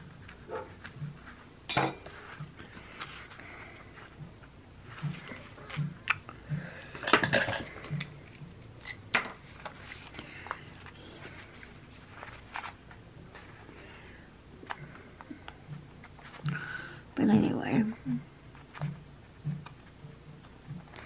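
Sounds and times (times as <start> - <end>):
paper sheets rustling: 9.4 - 13.8.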